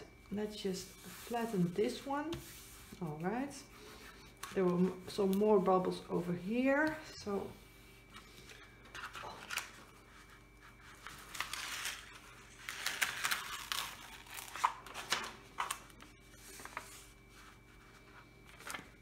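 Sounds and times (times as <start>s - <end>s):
paper crinkling and rustling: 8.4s - 19.0s.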